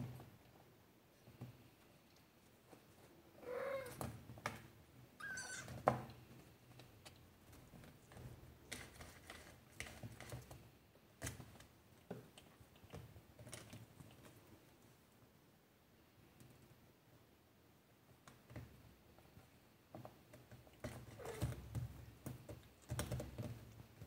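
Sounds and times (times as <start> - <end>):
kitten mewing: 5.2 - 5.7.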